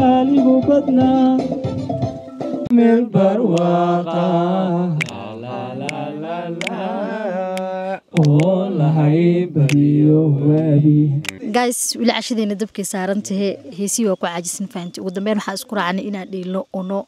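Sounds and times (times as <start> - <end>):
sharp clicks: 5.0 - 6.0, 8.2 - 8.6
woman singing unaccompanied: 11.2 - 17.0.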